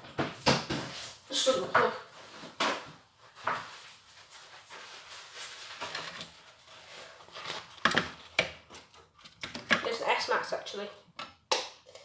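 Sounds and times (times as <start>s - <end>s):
paper towel crumpling: 2.1s - 7.8s.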